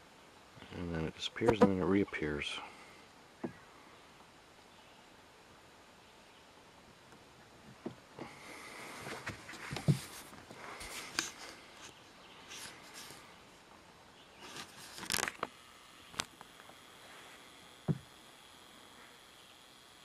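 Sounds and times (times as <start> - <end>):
brushing through dry grass: 8.8 - 13.3, 14.4 - 15.4
footsteps on rock: 9.0 - 11.6.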